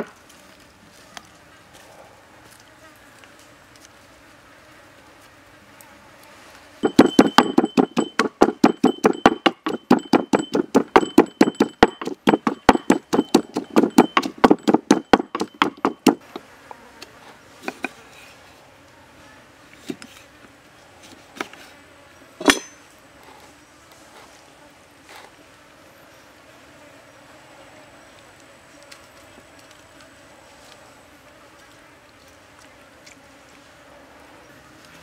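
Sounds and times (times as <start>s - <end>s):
pestle pounding in wooden mortar: 6.8s - 16.4s.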